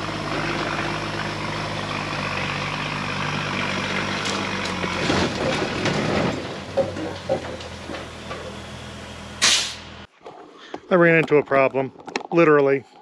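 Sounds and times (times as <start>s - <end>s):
truck engine running: 0.0s - 10.1s
branches scraping metal bed: 0.0s - 12.6s.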